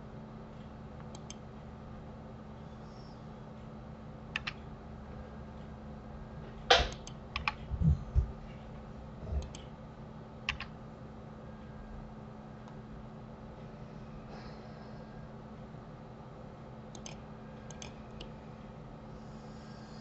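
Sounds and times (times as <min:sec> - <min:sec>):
steady low hum: 0:00.0 - 0:20.0
keyboard and mouse clicks: 0:01.0 - 0:01.4, 0:04.4 - 0:04.6, 0:06.7 - 0:07.7, 0:09.4 - 0:09.7, 0:10.5 - 0:10.7, 0:16.9 - 0:18.3
soft low thumps: 0:07.6 - 0:08.5.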